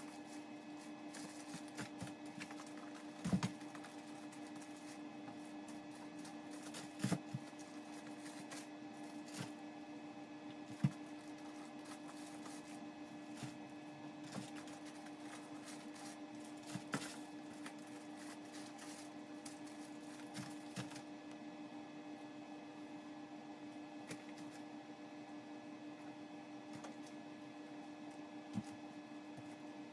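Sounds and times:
plastic-wrapped items knocking and rustling: 0:00.0 - 0:09.6, 0:10.6 - 0:13.6, 0:14.2 - 0:21.0
steady low hum: 0:00.0 - 0:29.9.

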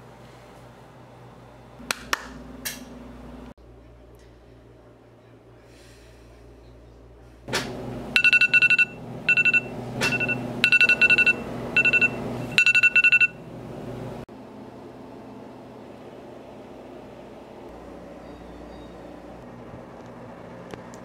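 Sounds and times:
phone alarm beeping: 0:08.2 - 0:13.4.

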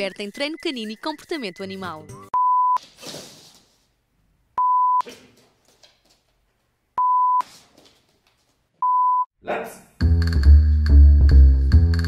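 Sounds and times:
pure test tone beep: 0:02.3 - 0:02.8, 0:04.6 - 0:05.0.

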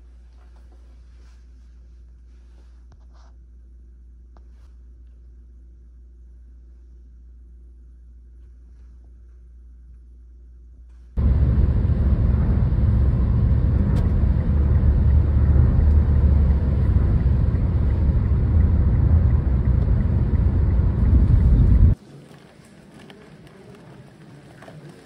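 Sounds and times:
vehicle rumble from inside cabin: 0:11.2 - 0:22.0.

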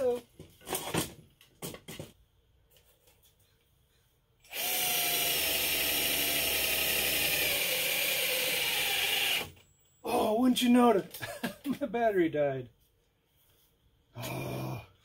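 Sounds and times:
cordless drill whining: 0:04.4 - 0:09.6.

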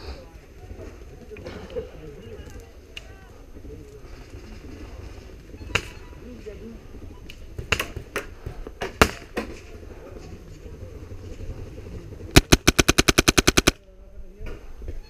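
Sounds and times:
airsoft rifle full-auto burst: 0:12.4 - 0:13.8
single sharp cracks: 0:12.4 - 0:13.8.

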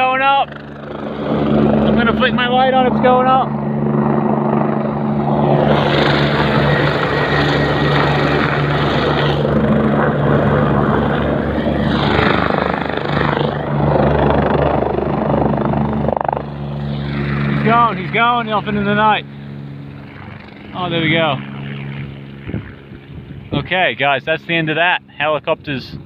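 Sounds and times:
helicopter rotor and engine drone: 0:00.0 - 0:26.0
loud rushing noise: 0:04.9 - 0:15.4.

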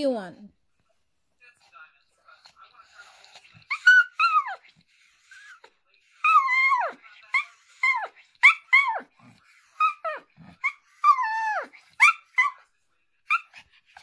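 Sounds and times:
small dog whining and yipping: 0:03.6 - 0:12.7, 0:13.3 - 0:14.0.

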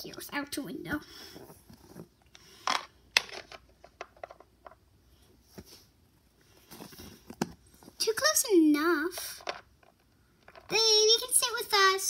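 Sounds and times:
plastic toys clicking and tapping: 0:09.1 - 0:10.7.

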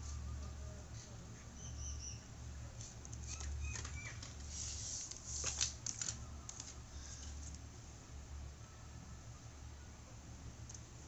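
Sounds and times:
rubber cord rustling: 0:02.8 - 0:07.6.

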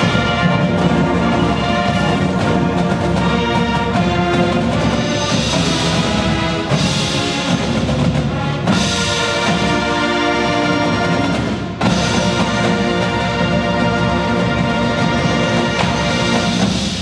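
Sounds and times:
marching band brass chords: 0:00.0 - 0:17.0
percussion: 0:00.0 - 0:17.0.

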